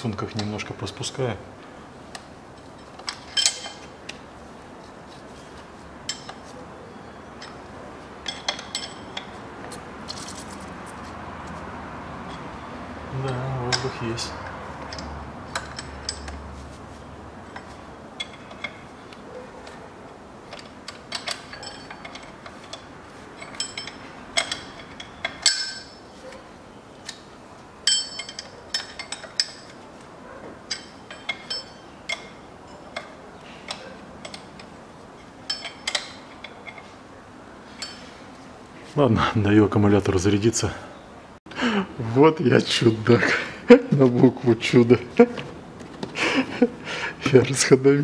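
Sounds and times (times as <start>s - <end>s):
metal tools clinking on fittings: 2.8s - 3.9s, 6.0s - 6.5s, 7.2s - 9.4s, 13.2s - 14.2s, 14.9s - 16.4s, 17.4s - 19.0s, 20.5s - 26.2s, 27.8s - 29.8s, 30.7s - 37.0s, 37.7s - 38.1s.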